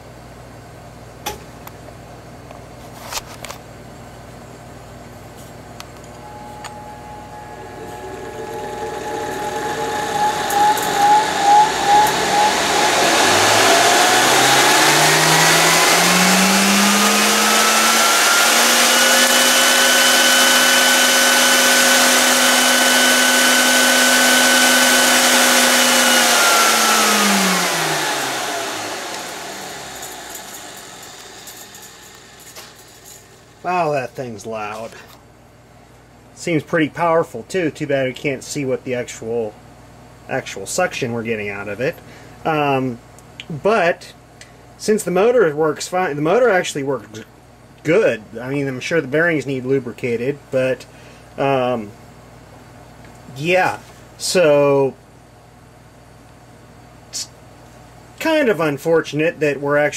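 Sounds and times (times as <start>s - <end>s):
vacuum cleaner motor whining: 6.2s - 33.9s.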